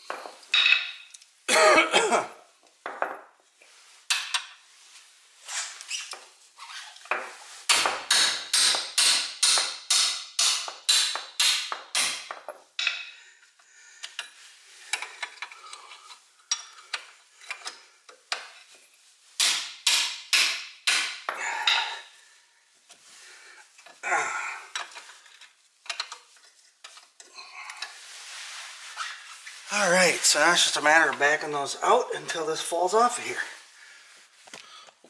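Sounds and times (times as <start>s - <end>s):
hammer striking wrench: 7.7s - 13.0s.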